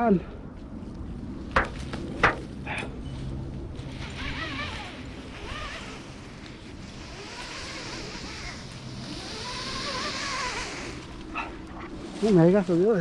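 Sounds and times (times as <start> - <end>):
rope hissing through descent device: 3.9 - 12.3.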